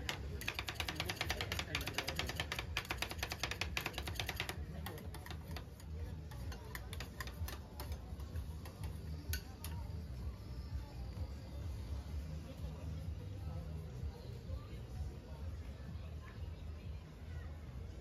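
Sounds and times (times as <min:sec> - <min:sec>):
metal spatulas tapping steel plate: 0:06.2 - 0:09.8.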